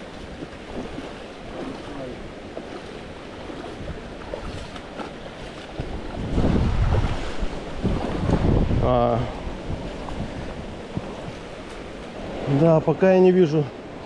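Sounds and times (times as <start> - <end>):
wind buffeting microphone: 0.0 - 12.8
wind and water rushing: 0.0 - 14.0.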